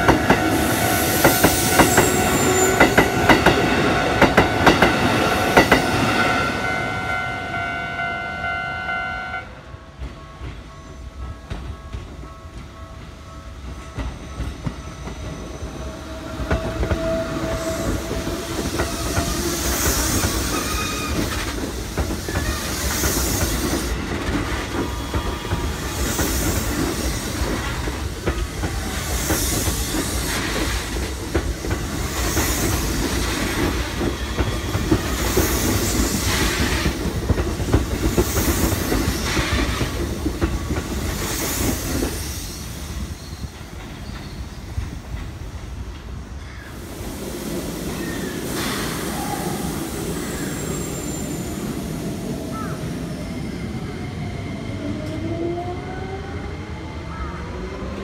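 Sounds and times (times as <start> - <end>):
electric train passing: 0.0 - 58.0
train wheels clattering over rail joints: 16.3 - 46.2.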